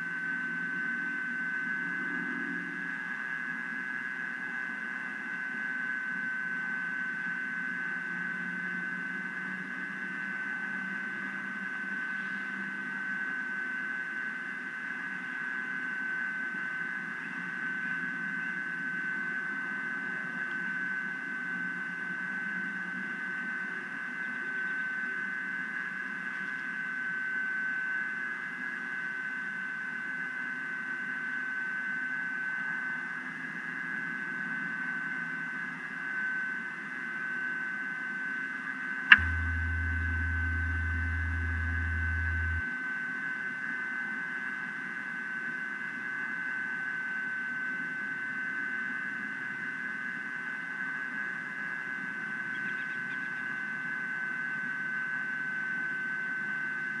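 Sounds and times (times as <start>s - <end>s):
high-pitched whine: 37.9s - 42.8s
faint low rumble: 39.1s - 42.6s.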